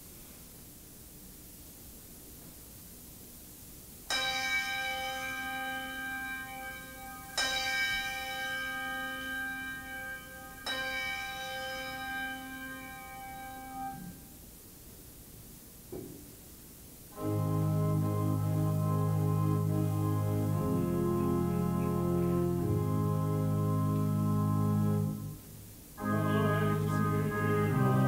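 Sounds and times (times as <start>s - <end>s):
bell ringing: 4.1s - 14.1s.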